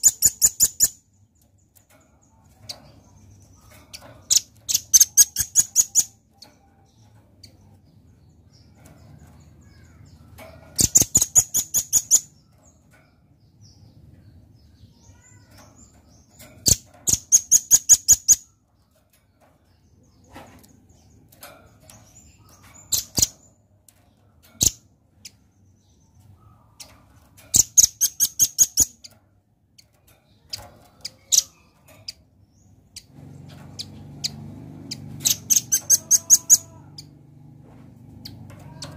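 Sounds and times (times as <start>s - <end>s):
bird high chipping calls: 0.0s - 1.2s, 2.8s - 7.6s, 9.5s - 12.8s, 24.6s - 37.2s.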